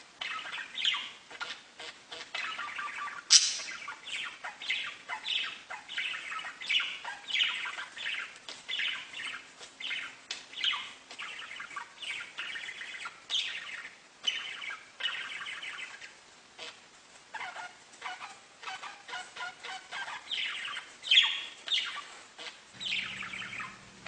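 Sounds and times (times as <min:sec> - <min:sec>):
budgerigars chirping and warbling: 0:00.2 - 0:24.0.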